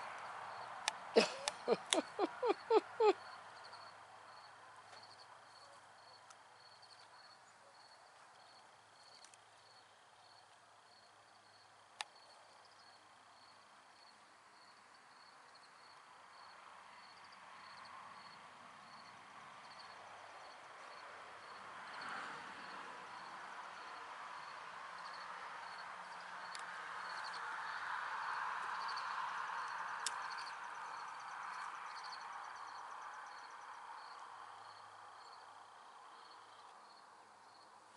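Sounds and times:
crickets chirping: 0.0 - 37.9
sharp clicks: 0.8 - 2.1.

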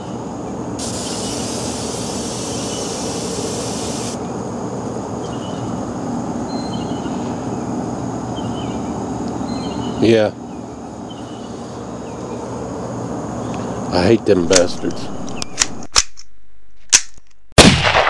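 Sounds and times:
aerosol can spraying hiss: 0.8 - 4.2.

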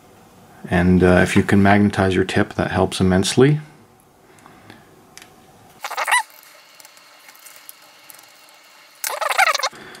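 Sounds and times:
tiny screw squeaking: 5.8 - 6.4, 9.0 - 9.7.

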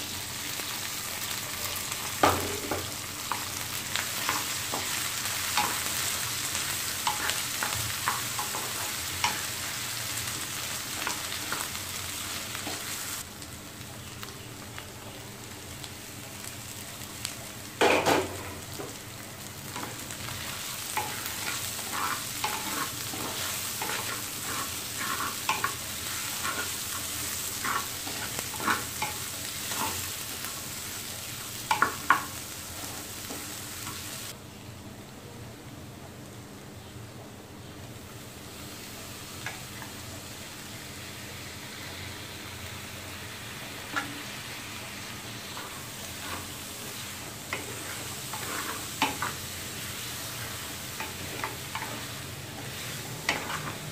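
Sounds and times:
vegetables sizzling in oil: 0.0 - 34.4, 37.6 - 53.9
spatula scraping a pan: 21.0 - 30.0, 45.6 - 49.4, 51.0 - 53.9.

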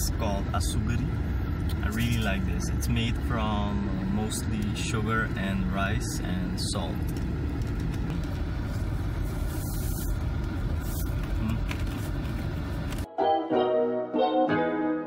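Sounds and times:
car cabin road rumble: 0.0 - 13.1
keyboard background music: 13.0 - 15.0.

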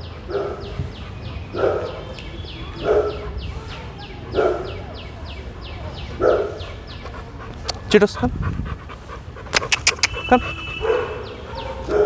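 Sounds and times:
dog panting: 5.6 - 12.0.

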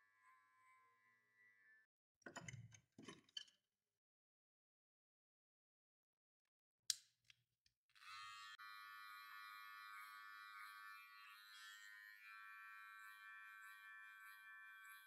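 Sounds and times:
hair clipper buzzing: 8.0 - 14.9.

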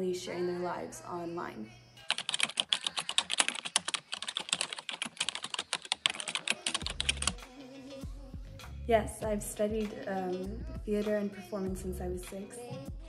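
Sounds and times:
keyboard typing clicks: 2.1 - 7.4.

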